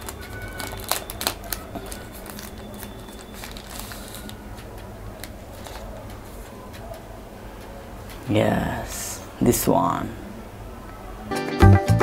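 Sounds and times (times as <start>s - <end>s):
packaging crinkling and rustling: 0.0s - 7.0s
soft crackles and clicks: 0.0s - 8.2s.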